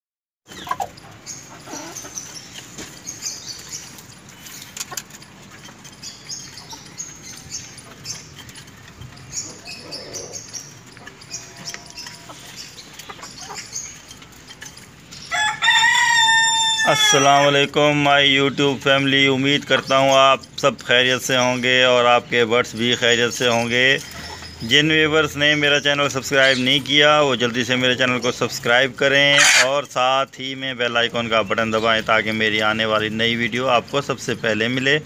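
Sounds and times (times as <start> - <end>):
chickens clucking softly: 0.5 - 2.9, 12.2 - 14.1
beaks pecking grain: 0.5 - 29.9
rooster crowing: 15.3 - 17.2.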